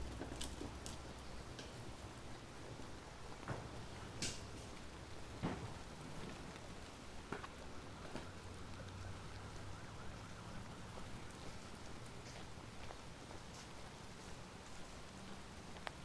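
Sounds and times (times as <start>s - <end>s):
sharp raindrop taps: 0.0s - 12.6s
light rain hissing: 0.0s - 16.0s.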